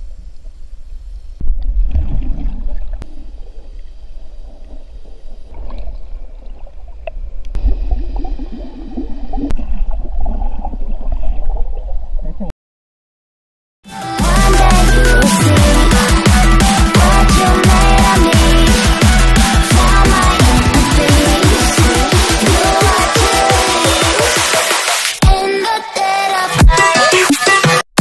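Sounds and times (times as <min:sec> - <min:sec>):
muffled underwater rumble: 0:00.0 - 0:12.5.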